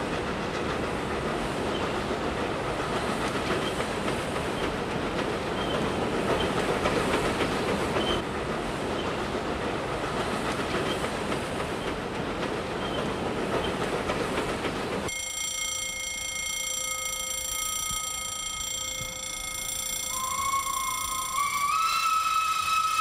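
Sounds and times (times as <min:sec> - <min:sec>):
wheels clicking over rail joints: 0:00.0 - 0:15.2
steam train running past: 0:00.0 - 0:23.0
level-crossing warning bell: 0:15.1 - 0:23.0
steam whistle: 0:19.9 - 0:23.0.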